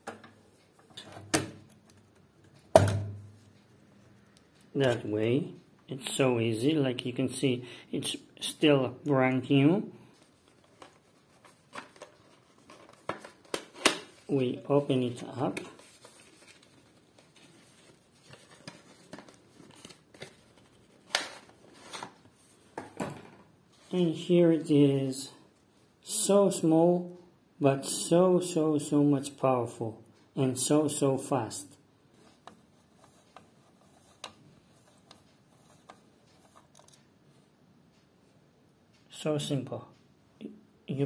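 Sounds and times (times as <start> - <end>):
faint handling clicks and taps: 32.1 - 38.1.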